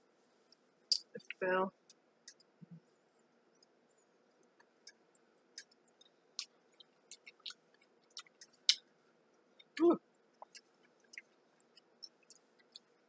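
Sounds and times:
pickles being bitten and chewed: 4.9s - 8.8s.

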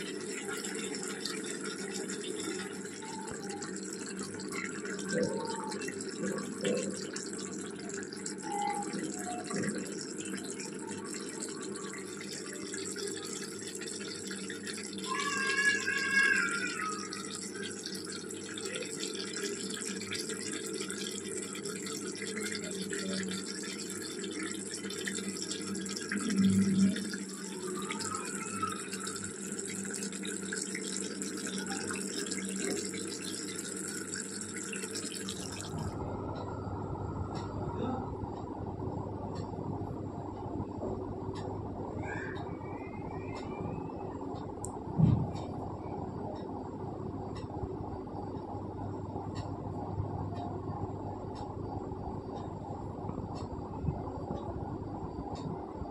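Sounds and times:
curry bubbling in a pan: 0.0s - 36.0s.

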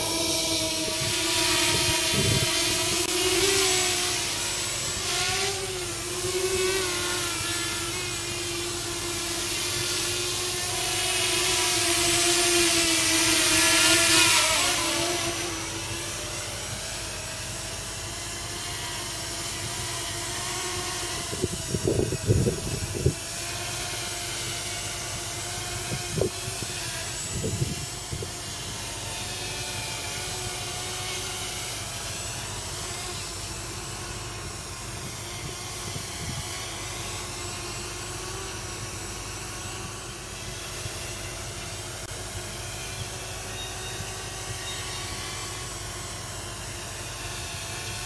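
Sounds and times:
quadcopter motors whining: 0.0s - 48.0s.

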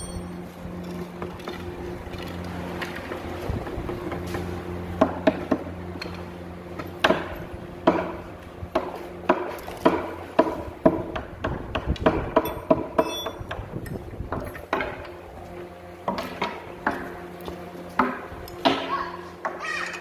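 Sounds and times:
machine hum: 0.0s - 20.0s
hammer knocking on wood: 7.0s - 13.6s.

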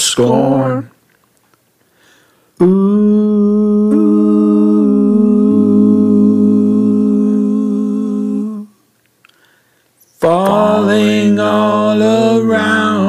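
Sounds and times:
person humming: 2.6s - 8.7s.

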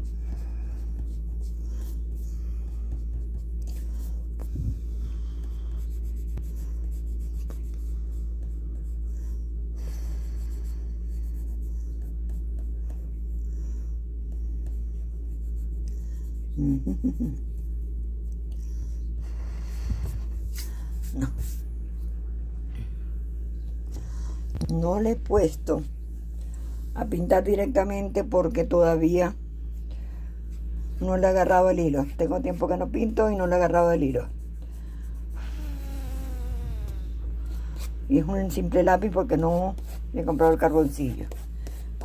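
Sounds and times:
pencil scratching on paper: 0.0s - 4.5s, 5.1s - 9.4s, 10.2s - 13.3s, 37.5s - 42.0s
steady low hum: 0.0s - 42.0s.

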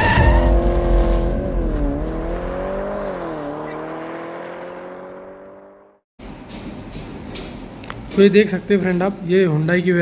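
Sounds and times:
car engine humming: 0.2s - 5.9s.

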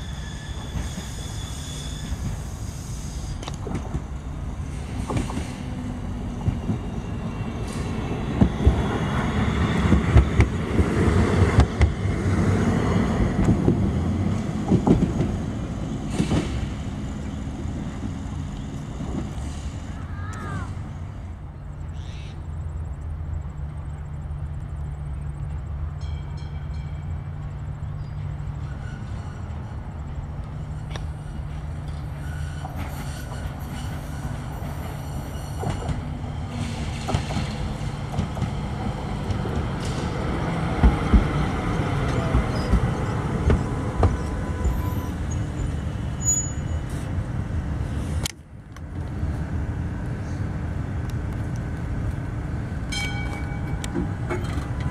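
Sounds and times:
falling whine of passing tram: 0.0s - 54.9s
tram humming: 0.0s - 54.9s
wheels clacking over rail joints: 28.0s - 47.2s, 51.0s - 54.9s.

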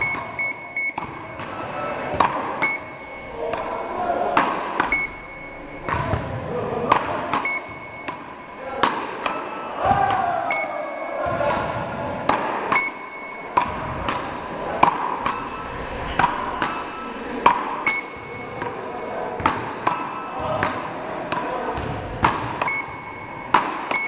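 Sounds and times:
short high electronic beep: 0.0s - 2.0s, 2.6s - 3.8s, 4.9s - 5.9s, 7.4s - 8.5s, 10.5s - 11.2s, 15.2s - 19.1s
wooden paddles hitting rubber ball: 0.0s - 2.9s, 4.3s - 5.1s, 5.8s - 10.2s, 11.3s - 15.4s, 19.4s - 24.0s.

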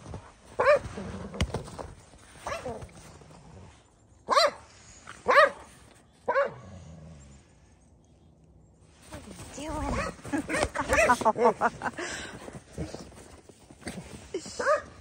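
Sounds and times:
dog barking: 0.6s - 0.8s, 4.3s - 4.6s, 5.3s - 5.6s, 6.3s - 6.6s.

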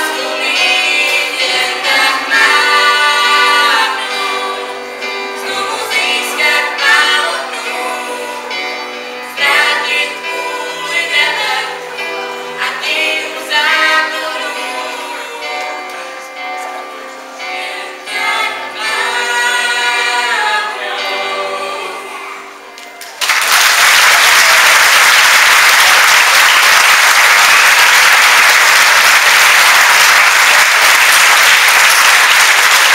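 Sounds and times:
sung duet over backing music: 0.0s - 22.7s
audience applause: 23.0s - 32.9s.

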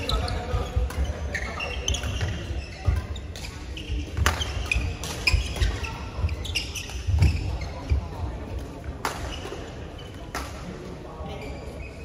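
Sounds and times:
shoe squeaks on court: 0.0s - 8.2s, 11.3s - 12.0s
racket hitting shuttlecock: 0.1s - 7.4s, 8.9s - 9.6s, 10.3s - 10.6s.

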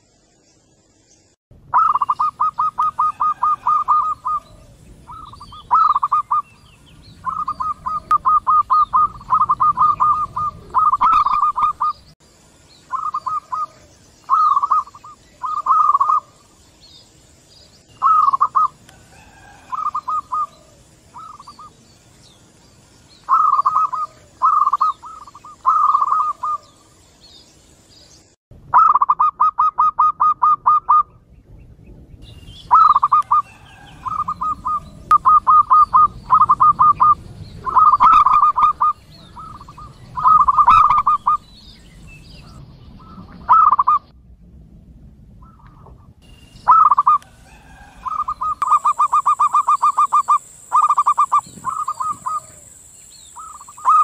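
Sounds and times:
doves cooing: 1.7s - 12.2s, 12.9s - 16.6s, 18.0s - 21.8s, 23.2s - 26.9s, 32.7s - 41.6s, 42.4s - 44.1s, 46.6s - 54.0s.

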